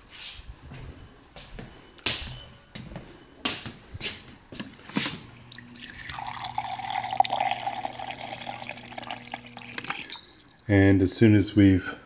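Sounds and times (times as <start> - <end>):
low steady hum: 0.0 - 12.0
water streaming into cup: 5.5 - 10.7.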